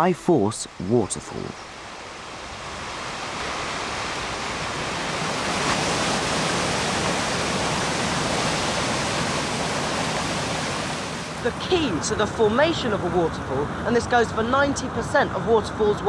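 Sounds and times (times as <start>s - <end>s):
waterfall rushing: 0.4s - 13.0s.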